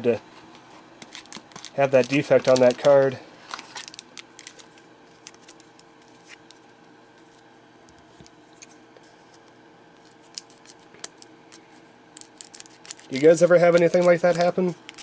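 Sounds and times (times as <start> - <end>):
scissors snipping foil: 12.2 - 15.0.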